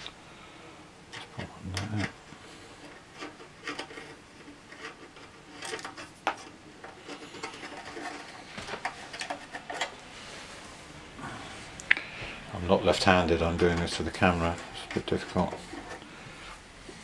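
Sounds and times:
metal nuts clicking and scraping: 2.8s - 10.0s.

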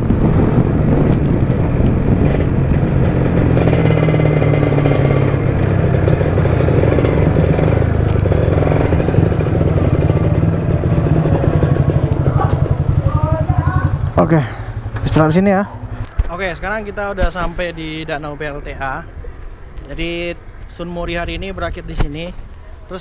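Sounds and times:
motorcycle engine idling: 0.9s - 16.1s.

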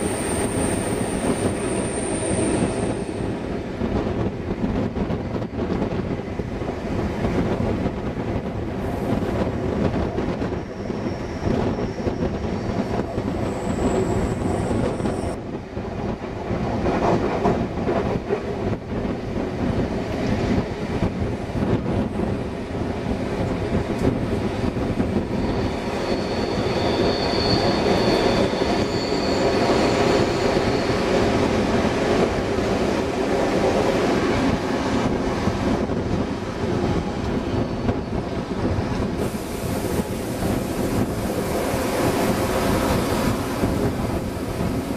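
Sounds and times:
train wheels clattering on rails: 0.0s - 44.9s
high-pitched wheel squeal: 10.6s - 12.8s, 13.4s - 15.4s, 25.0s - 31.4s.

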